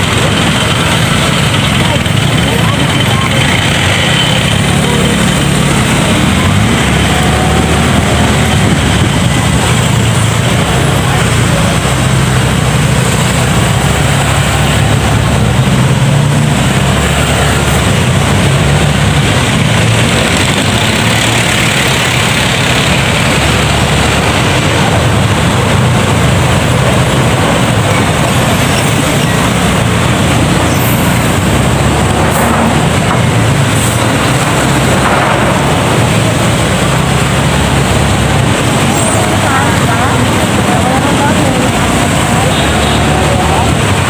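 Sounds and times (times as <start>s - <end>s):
motorcycle engine hum: 0.0s - 44.0s
wind noise on microphone: 5.4s - 14.1s.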